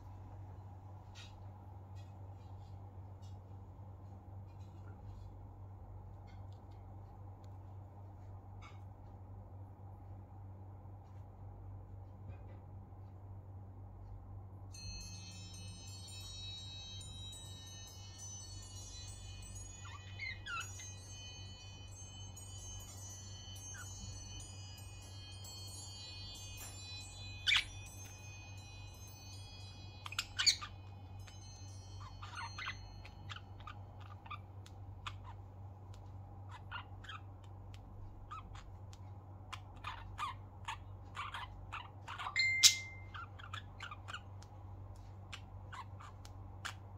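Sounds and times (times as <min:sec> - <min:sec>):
steady low hum: 0:00.0 - 0:46.9
ringing chime tones: 0:14.7 - 0:34.4, 0:42.2 - 0:44.0
budgerigars chirping: 0:19.8 - 0:20.9, 0:27.4 - 0:27.7, 0:30.0 - 0:30.8, 0:32.0 - 0:34.4, 0:39.5 - 0:44.3.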